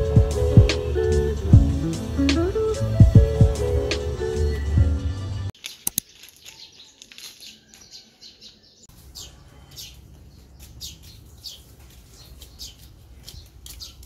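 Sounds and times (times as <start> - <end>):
small birds chirping: 5.6 - 14.0.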